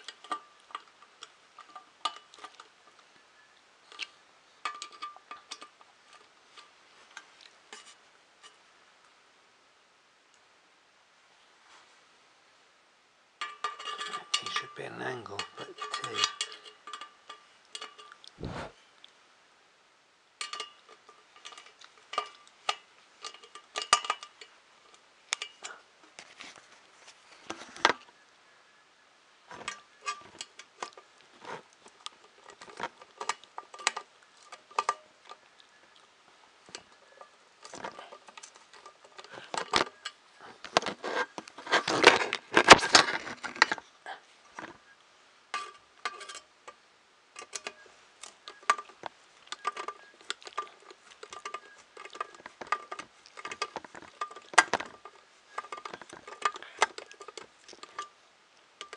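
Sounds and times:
small metal screws clinking: 13.4s - 18.3s, 20.4s - 25.8s, 45.5s - 46.8s, 47.4s - 58.2s.

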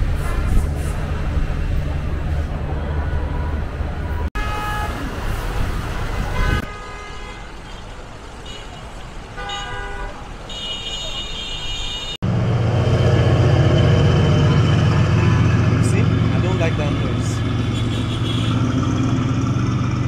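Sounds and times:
road traffic: 0.0s - 20.0s
vehicle horns tooting: 2.9s - 5.1s, 6.0s - 7.8s, 8.4s - 12.3s, 12.9s - 19.0s.

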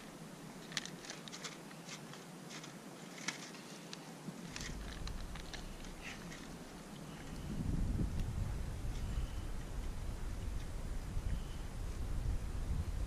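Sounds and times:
low rumble: 4.5s - 13.0s.

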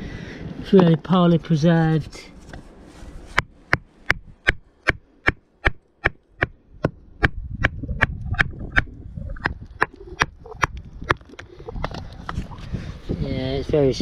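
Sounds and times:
hammer tapping on rock: 3.4s - 11.2s
low rumble: 6.6s - 13.4s.

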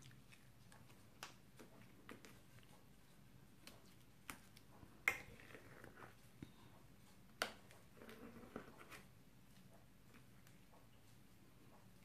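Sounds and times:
slime stirred with sticky pops: 0.0s - 12.0s.

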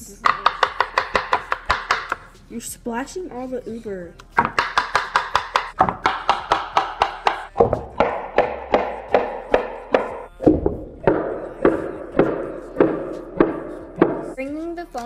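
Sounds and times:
knife chopping on wooden board: 0.3s - 2.3s, 4.4s - 14.4s.

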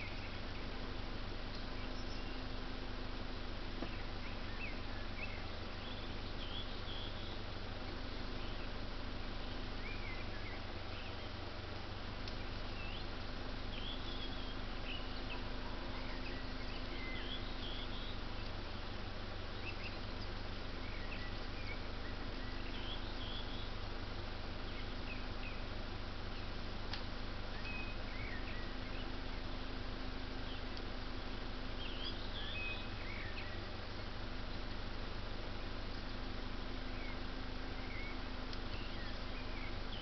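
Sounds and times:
small birds chirping: 0.0s - 40.0s
steady low hum: 0.0s - 40.0s.

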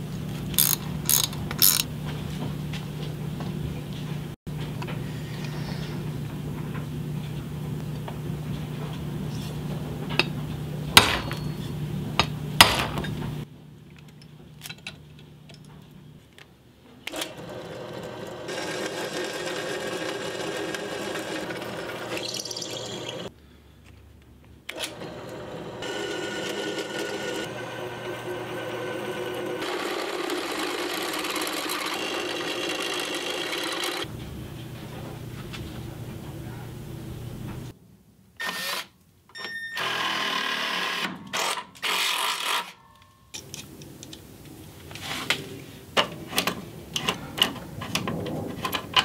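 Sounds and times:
drill press boring steel: 0.6s - 1.8s, 17.1s - 23.3s, 24.7s - 34.1s.

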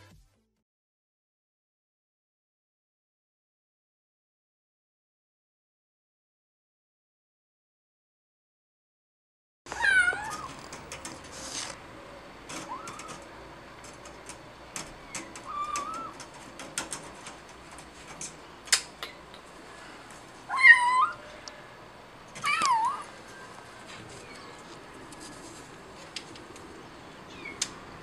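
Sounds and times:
cat meowing: 9.7s - 10.7s, 12.6s - 13.3s, 15.0s - 16.2s, 20.5s - 21.5s, 22.4s - 23.2s
claws scraping window screen: 9.7s - 21.4s, 22.2s - 27.8s.

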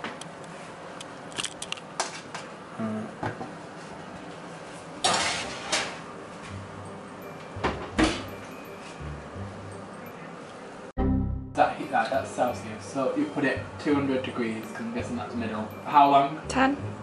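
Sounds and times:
oven door knocks: 7.6s - 8.3s.

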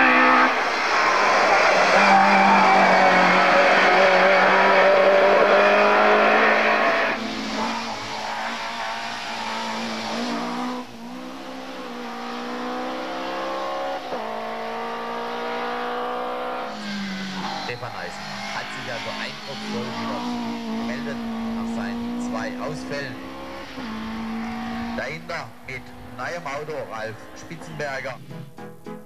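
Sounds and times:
tyre squeal: 0.0s - 10.4s
racing car engines at full throttle: 0.0s - 28.3s.

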